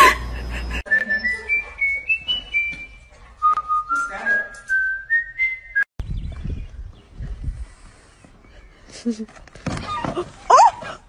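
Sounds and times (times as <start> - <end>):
person whistling a tune: 0.9 - 5.9.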